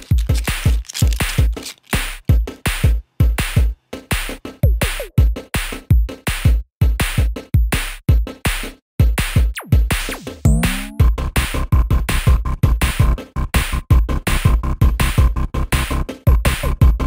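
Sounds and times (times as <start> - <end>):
drum-machine beat: 0.0 - 13.2
upbeat electronic music: 9.6 - 11.2.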